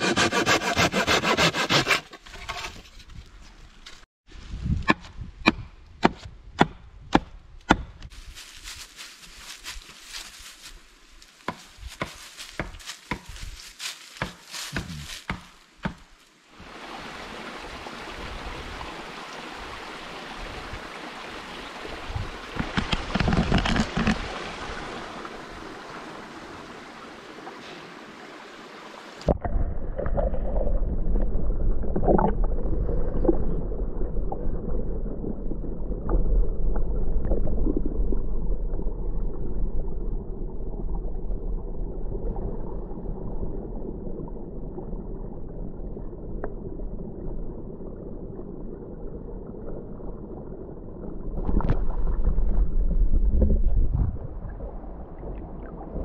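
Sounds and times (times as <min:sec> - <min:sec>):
dry leaves crackling and rustling: 0:08.1 - 0:15.3
creek rushing: 0:16.3 - 0:23.2, 0:23.8 - 0:29.3
underwater rush with bubbling: 0:29.2 - 0:56.0.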